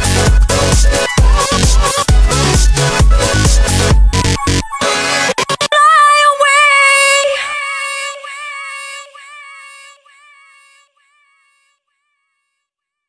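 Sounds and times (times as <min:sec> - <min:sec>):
electronic music: 0:00.0 - 0:10.0
woman singing long note: 0:05.7 - 0:10.7.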